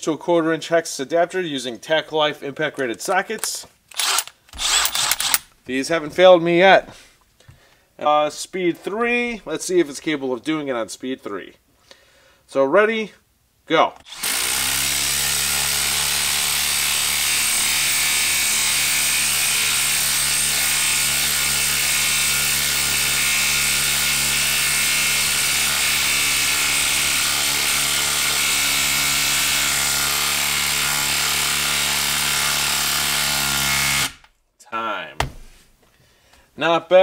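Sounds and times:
impact driver hammering: 0:04.0 - 0:05.5.

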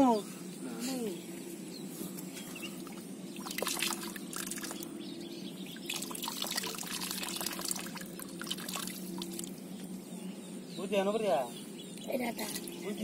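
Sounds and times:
steady low hum: 0:00.0 - 0:13.0
water splashing in metal bowl: 0:03.4 - 0:04.8, 0:05.8 - 0:09.5.

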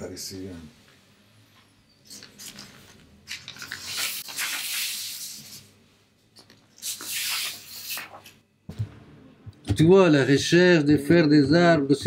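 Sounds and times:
paper sheets rustling and sliding: 0:02.2 - 0:05.6, 0:06.8 - 0:08.4.

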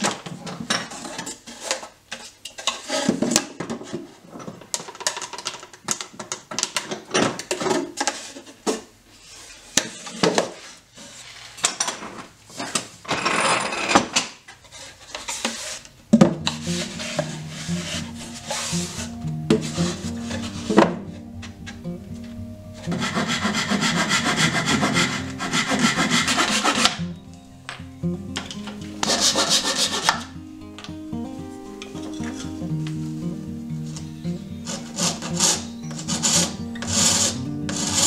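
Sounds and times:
background music: 0:16.2 - 0:38.0.

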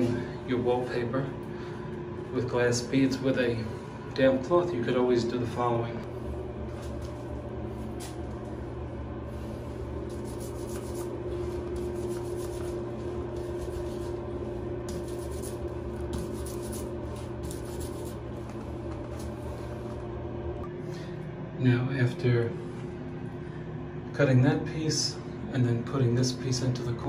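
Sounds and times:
steady low hum: 0:00.0 - 0:27.0
cloth rubbing on wallpaper: 0:09.3 - 0:19.9.

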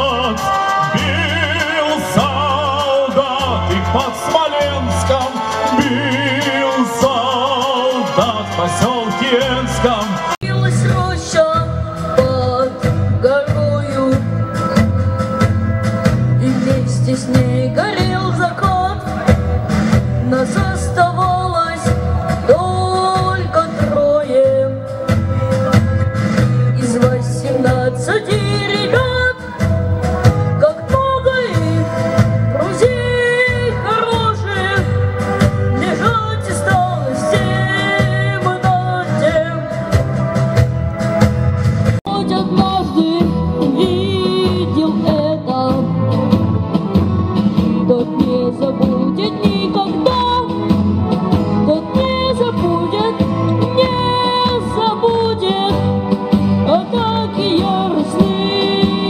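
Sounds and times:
instrumental backing track: 0:00.0 - 0:59.0
boy singing into a microphone: 0:20.2 - 0:24.9, 0:26.7 - 0:29.6, 0:32.5 - 0:34.9, 0:35.7 - 0:39.7, 0:42.1 - 0:46.0, 0:47.8 - 0:50.6, 0:51.7 - 0:59.0.

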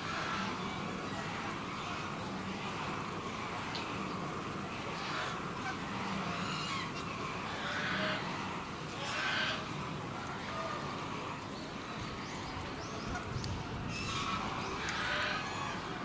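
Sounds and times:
goose splashing water: 0:00.1 - 0:16.0
birds calling: 0:10.8 - 0:16.0.

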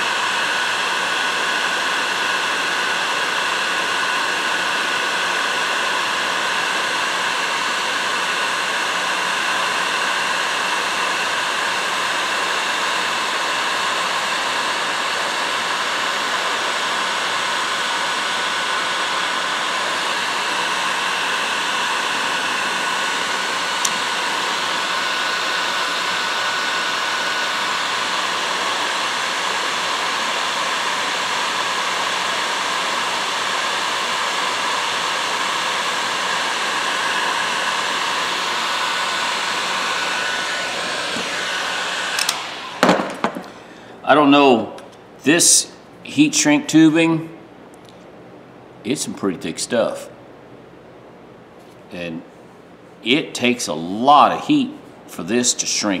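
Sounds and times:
heat gun blowing: 0:00.0 - 0:45.8
small click: 0:42.2 - 0:42.4.

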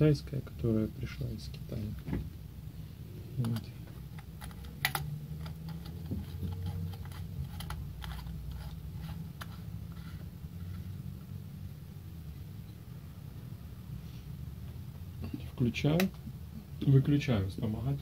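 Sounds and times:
steady low hum: 0:00.0 - 0:18.0
bulb clicking and scraping in socket: 0:03.5 - 0:09.6.

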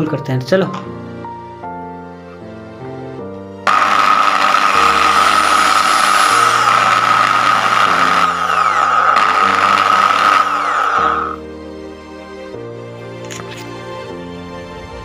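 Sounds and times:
electric drill boring into metal: 0:03.7 - 0:11.4.

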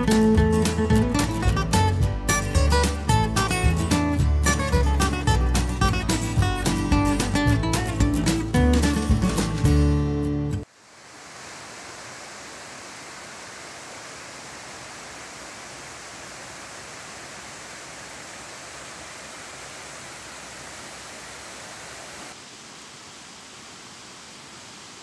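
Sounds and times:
creek rushing over boulders: 0:10.6 - 0:25.0.

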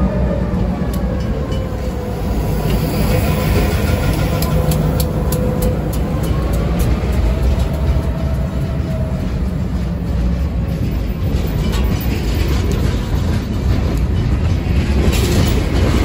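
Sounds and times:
freight train rumbling: 0:00.0 - 0:16.0.

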